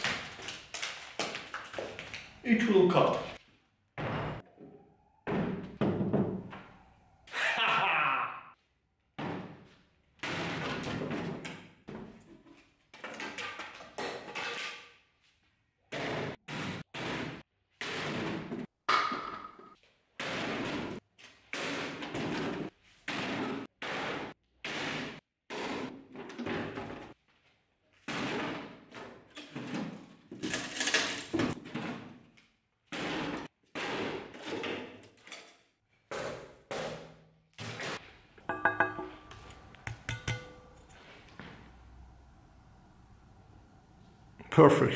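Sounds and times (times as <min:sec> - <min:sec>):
axe chopping into cardboard and wood: 0:32.9 - 0:34.8.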